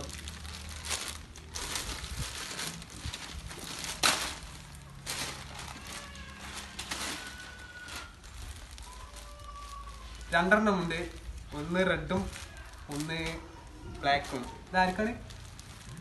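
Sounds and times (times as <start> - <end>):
plastic bag crinkling and tearing: 0.0 - 16.0.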